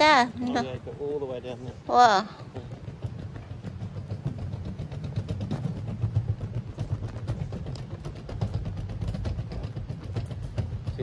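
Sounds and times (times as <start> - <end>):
small clicks and rattles: 0.0 - 11.0
wheelchair wheels rumbling: 0.0 - 11.0.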